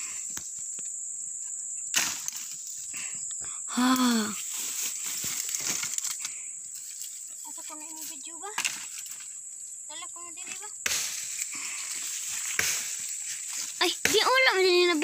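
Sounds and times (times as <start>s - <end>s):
high insect buzz: 0.0s - 15.0s
dry branches cracking: 5.1s - 6.4s, 10.9s - 15.0s.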